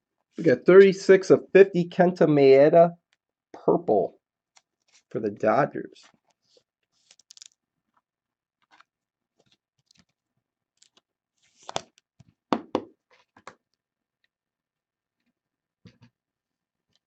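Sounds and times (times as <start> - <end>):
card sleeve rustles and clicks: 6.0 - 7.6, 10.8 - 12.0.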